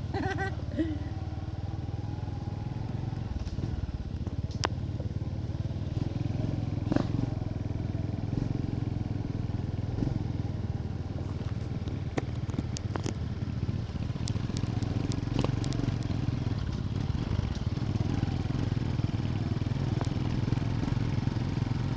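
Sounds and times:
small motorcycle engine running: 0.0s - 21.9s
sharp clacks from bumps: 2.8s - 5.2s, 6.8s - 7.4s, 11.1s - 21.4s.

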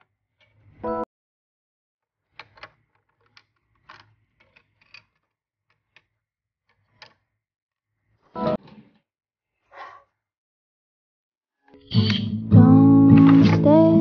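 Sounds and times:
plastic toy pieces clicking: 2.3s - 6.1s.

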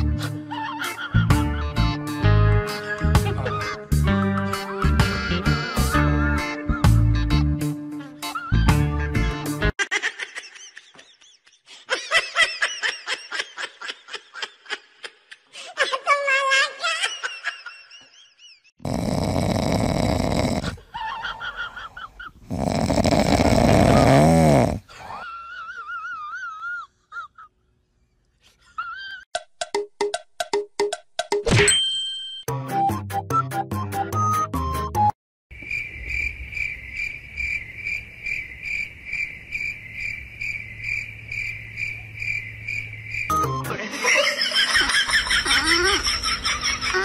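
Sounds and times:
dog snoring: 18.8s - 20.8s, 22.4s - 24.9s
cricket chirping: 35.5s - 43.4s.

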